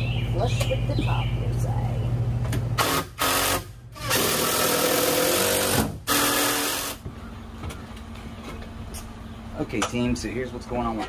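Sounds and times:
cordless drill driving screws: 0:02.8 - 0:07.0.

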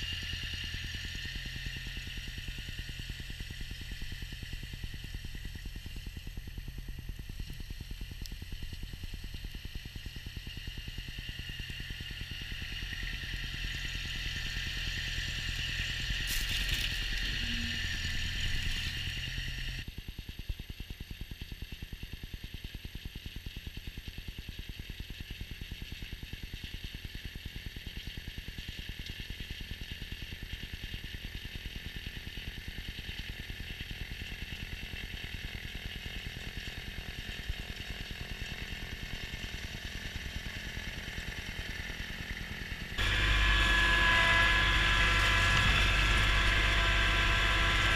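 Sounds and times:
tractor diesel engine running: 0:00.0 - 0:19.8, 0:33.7 - 0:47.9.

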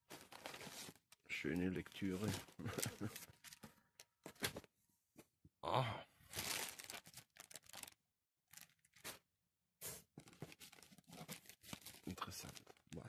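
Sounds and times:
plastic and bubble wrap crinkling: 0:00.0 - 0:03.6, 0:06.3 - 0:09.2, 0:10.0 - 0:13.0.

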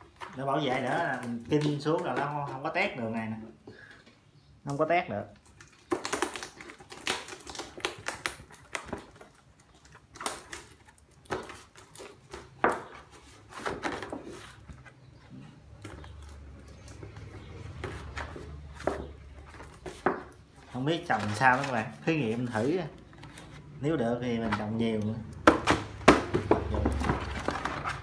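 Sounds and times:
plastic pot crackling and clicking: 0:00.1 - 0:02.7, 0:04.7 - 0:12.9.

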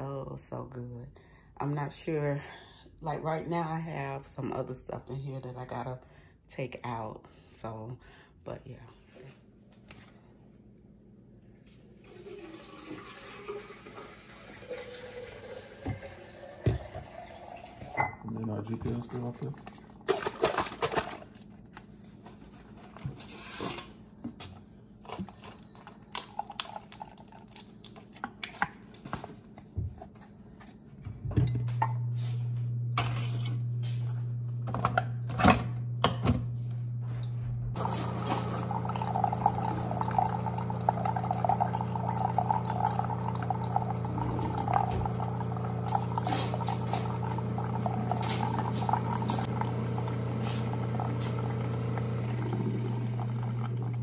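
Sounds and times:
coffee splashing into glass: 0:12.0 - 0:20.4, 0:26.1 - 0:27.9, 0:37.8 - 0:54.0
coffee maker motor hum: 0:12.0 - 0:21.2, 0:31.2 - 0:54.0
glass clinking: 0:17.9 - 0:18.3.

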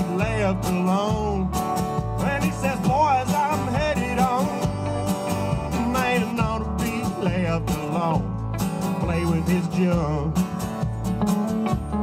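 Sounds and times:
live country band playing: 0:00.0 - 0:12.0
person singing: 0:02.2 - 0:08.3.

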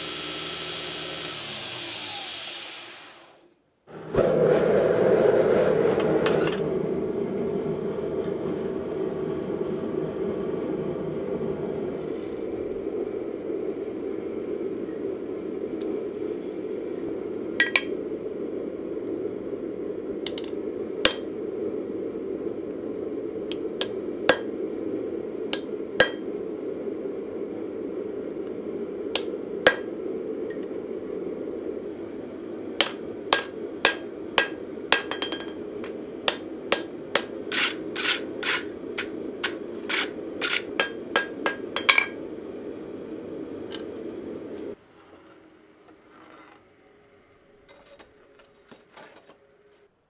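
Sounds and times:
steady rushing noise: 0:03.9 - 0:44.8
hammer striking blade on anvil: 0:32.8 - 0:35.6, 0:39.4 - 0:42.2.

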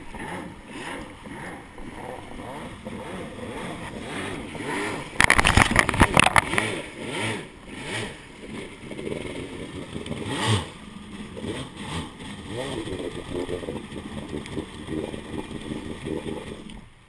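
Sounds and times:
jet ski engine revving: 0:00.0 - 0:17.0
propeller rattling on rocks: 0:05.2 - 0:06.7.

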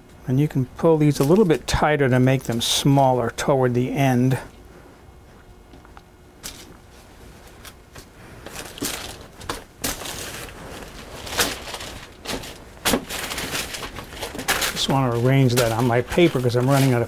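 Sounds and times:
parchment paper rustling: 0:00.9 - 0:02.8, 0:06.4 - 0:17.0.

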